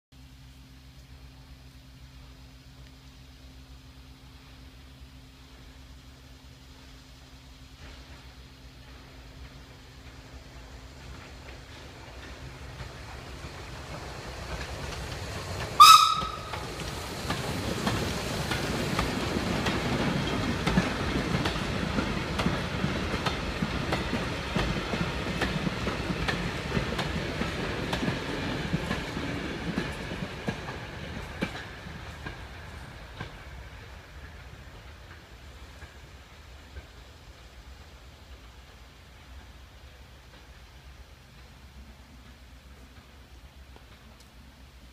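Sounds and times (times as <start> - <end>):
train rumbling past: 0.1 - 44.9
wheels clicking over rail joints: 7.7 - 44.9
steam train whistle: 15.8 - 16.8.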